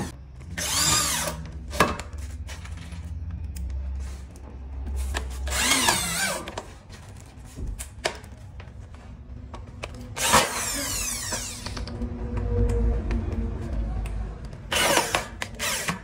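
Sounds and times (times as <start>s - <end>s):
drill motor whining: 0.0s - 1.5s, 5.5s - 6.4s, 10.2s - 12.0s, 14.7s - 16.0s.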